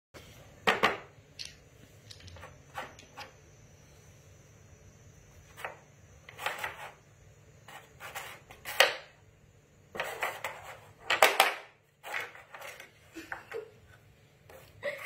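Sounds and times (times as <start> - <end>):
hard objects clicking and clattering: 0.7 - 3.3.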